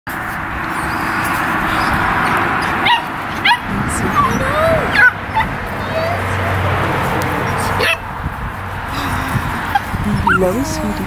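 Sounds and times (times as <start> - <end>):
puppies yipping: 0.6 - 6.5, 7.4 - 8.1, 9.6 - 11.0
puppies whining: 0.7 - 6.4, 9.7 - 11.0.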